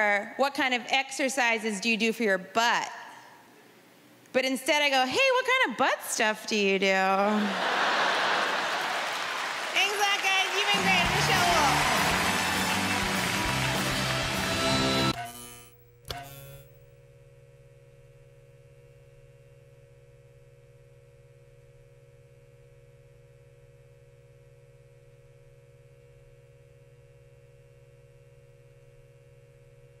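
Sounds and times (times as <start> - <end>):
neon sign buzz: 10.6 - 30.0.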